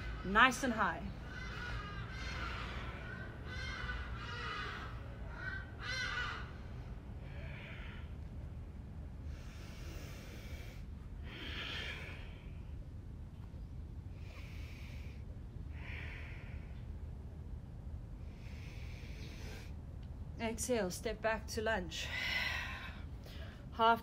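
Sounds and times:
low background rumble: 0:00.0 - 0:24.0
woman breathing: 0:09.2 - 0:13.0, 0:14.1 - 0:17.1, 0:18.2 - 0:19.8, 0:22.0 - 0:23.7.

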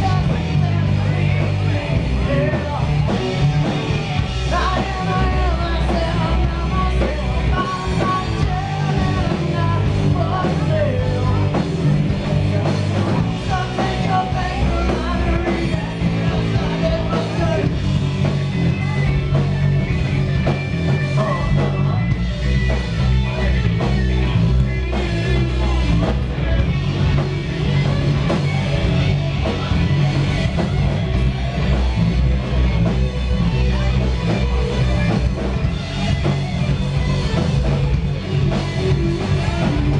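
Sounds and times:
man singing: 0:00.0 - 0:19.6, 0:20.8 - 0:22.2, 0:38.6 - 0:39.9
bass guitar: 0:00.0 - 0:39.9
drums: 0:00.0 - 0:39.9
electric guitars: 0:00.0 - 0:39.9.

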